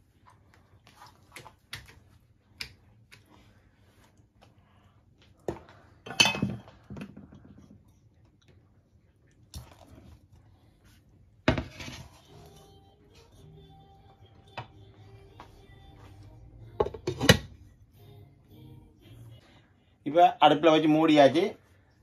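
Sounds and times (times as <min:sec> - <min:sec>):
metal pot scraping clatter: 0:11.5 - 0:12.2.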